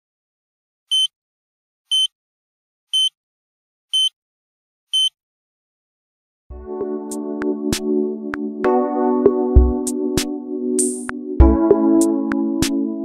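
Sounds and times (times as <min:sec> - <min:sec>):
short electronic beeps: 0:00.9 - 0:01.1, 0:01.9 - 0:02.1, 0:03.0 - 0:03.2, 0:03.9 - 0:04.2, 0:04.9 - 0:05.2.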